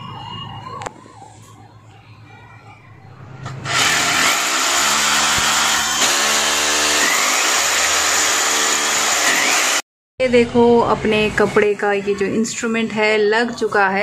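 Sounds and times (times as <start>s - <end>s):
electric drill boring: 3.6s - 9.8s.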